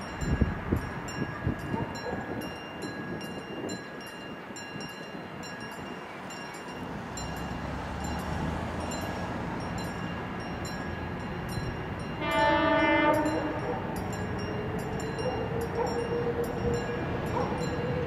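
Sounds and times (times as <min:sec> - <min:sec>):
diesel locomotive engine rumble: 0:00.0 - 0:18.0
level crossing warning bell: 0:00.0 - 0:18.0
locomotive horn blast: 0:12.1 - 0:14.0.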